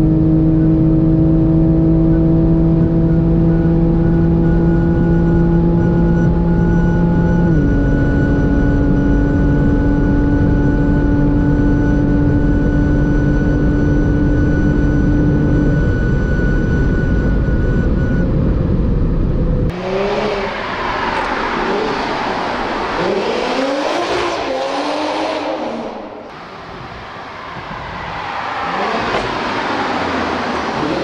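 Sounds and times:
car engine running at speed: 0:00.0 - 0:26.5
wind and road noise: 0:00.0 - 0:31.0
car engine revving: 0:19.7 - 0:27.2, 0:27.9 - 0:31.0.

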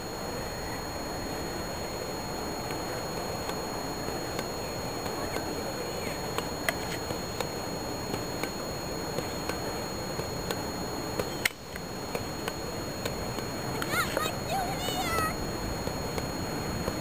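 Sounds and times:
faint high whine: 0:00.0 - 0:17.0
faint clicks: 0:06.3 - 0:14.2.

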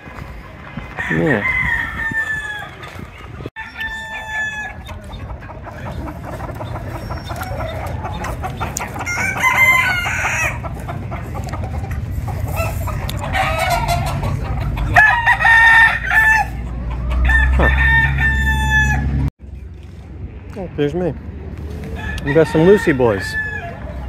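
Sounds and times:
chickens clucking: 0:00.0 - 0:19.2
roosters crowing: 0:00.4 - 0:19.3, 0:21.7 - 0:24.0.

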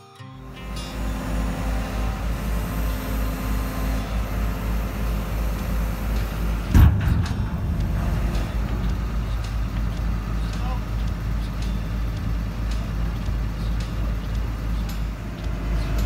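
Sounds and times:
diesel engine running: 0:00.3 - 0:16.0
hydraulic lift arms lowering: 0:00.5 - 0:16.0
loud metal thump: 0:06.6 - 0:11.3.

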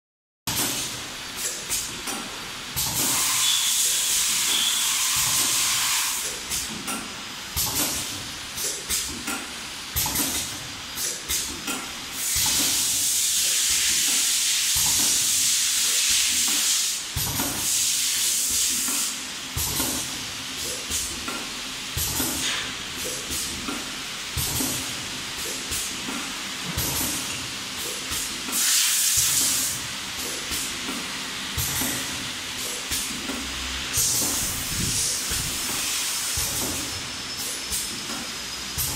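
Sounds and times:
loud air hiss: 0:02.9 - 0:06.7, 0:12.1 - 0:19.2, 0:28.5 - 0:29.8, 0:33.9 - 0:37.8.

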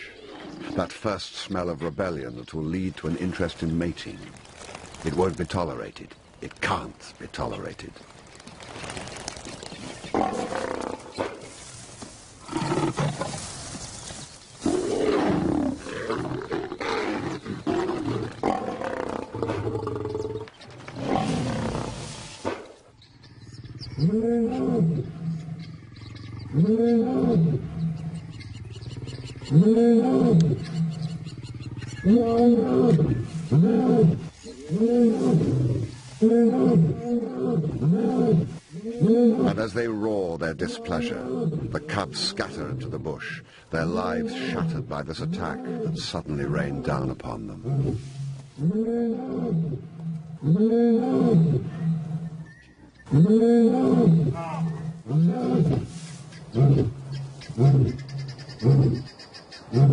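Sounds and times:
lions snarling and growling: 0:12.4 - 0:13.5, 0:14.6 - 0:22.1.

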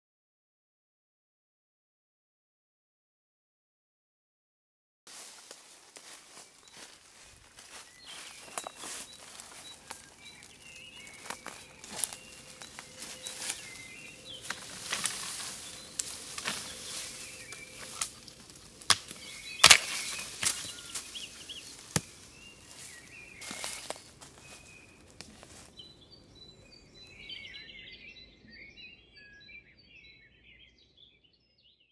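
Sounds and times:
knife chopping wood: 0:18.8 - 0:20.7, 0:21.9 - 0:22.1.

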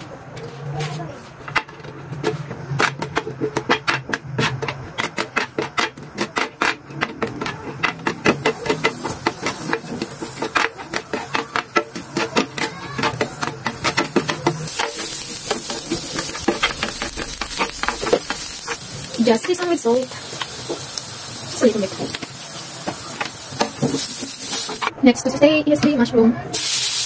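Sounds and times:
spatula tapping grill pan: 0:01.5 - 0:24.9
sizzling hiss: 0:14.7 - 0:24.9, 0:26.5 - 0:27.0.

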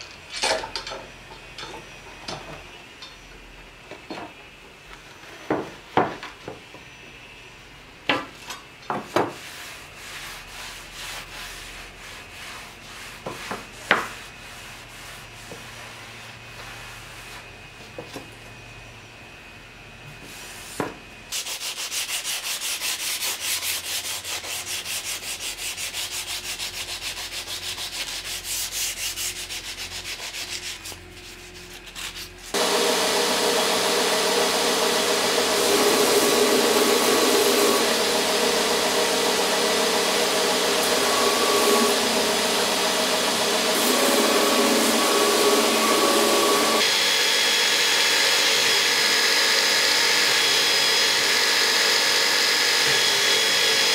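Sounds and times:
belt grinder whining: 0:32.6 - 0:53.9.

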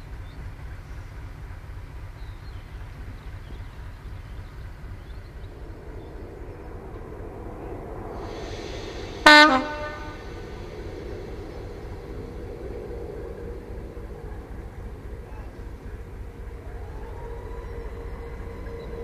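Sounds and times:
locomotive diesel engine rumbling: 0:00.0 - 0:19.0
train horn toot: 0:09.2 - 0:10.6.

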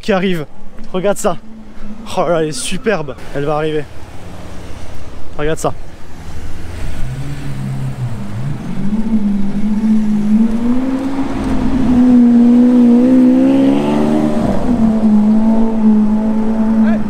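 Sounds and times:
sports car engine driving past: 0:06.0 - 0:17.0.

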